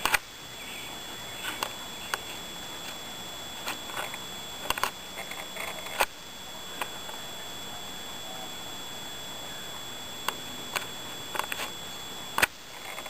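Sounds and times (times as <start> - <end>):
camcorder hiss and whine: 0.0 - 13.0
faint clicks and ticks: 1.4 - 3.0.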